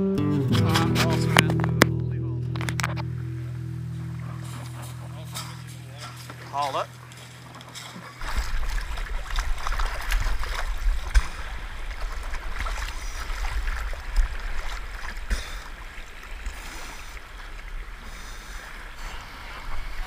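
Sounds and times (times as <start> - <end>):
low rumble: 0.0 - 16.7
water splashing: 2.6 - 20.0
water sloshing and lapping: 2.7 - 20.0
waves washing over rocks: 7.9 - 20.0.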